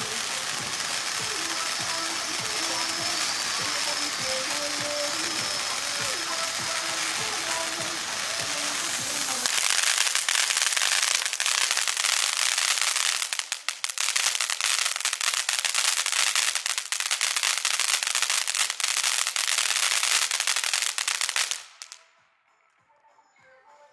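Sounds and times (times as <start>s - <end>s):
firework fountain spark hiss: 0.0s - 22.0s
firework crackling: 0.0s - 22.2s.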